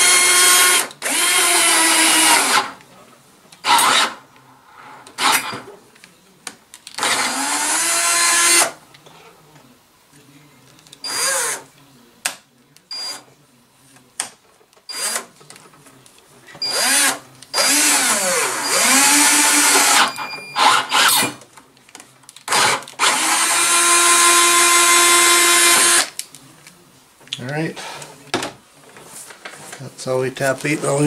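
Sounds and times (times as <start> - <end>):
cordless drill motor whining: 0.0 - 2.7, 7.0 - 8.7, 16.6 - 21.3, 22.5 - 26.1.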